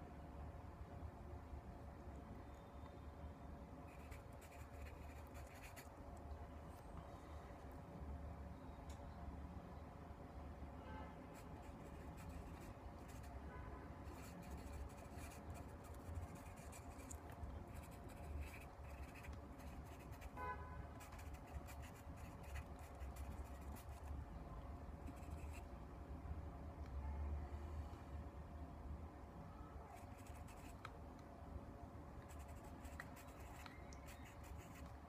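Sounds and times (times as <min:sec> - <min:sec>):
pen scratching on paper: 0:03.9 - 0:05.9, 0:14.0 - 0:20.4, 0:21.0 - 0:24.0, 0:30.0 - 0:30.8, 0:32.3 - 0:34.9.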